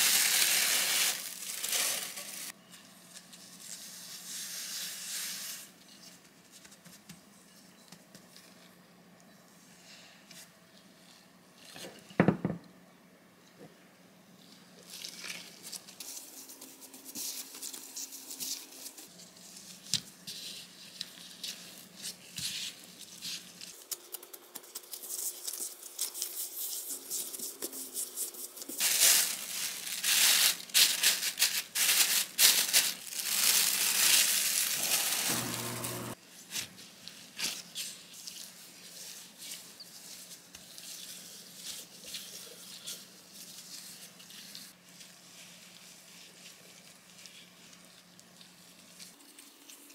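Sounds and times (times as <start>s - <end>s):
plastic sheet crinkling: 0.0s - 4.3s, 14.8s - 49.9s.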